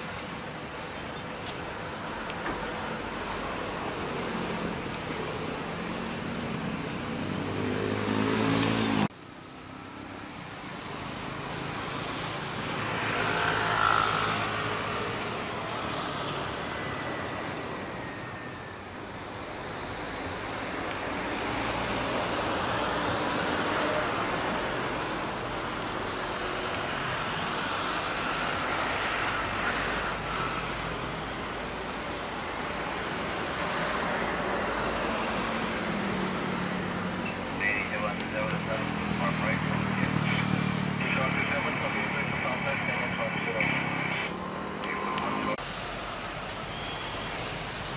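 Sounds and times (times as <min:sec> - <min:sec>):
jet engines running: 0:10.3 - 0:46.7
jet airliner passing with whine: 0:10.8 - 0:47.7.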